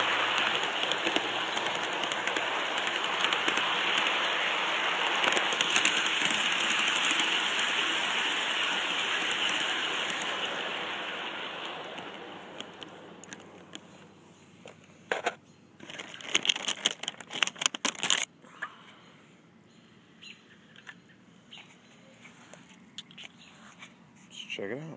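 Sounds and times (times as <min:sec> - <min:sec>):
sharp clicks and knocks: 0:00.0 - 0:10.5
model train running on track: 0:00.0 - 0:14.1.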